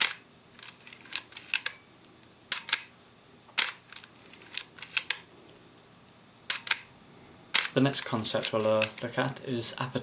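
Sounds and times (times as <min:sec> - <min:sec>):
camera dial clicking: 0:02.5 - 0:02.9, 0:03.6 - 0:05.2, 0:06.5 - 0:06.9, 0:07.6 - 0:07.8.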